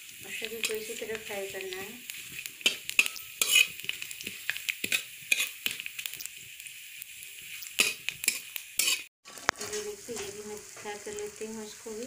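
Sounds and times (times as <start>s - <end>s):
onions sizzling in hot oil: 0.0s - 12.0s
spatula scraping a pan: 0.5s - 5.9s, 7.4s - 11.1s.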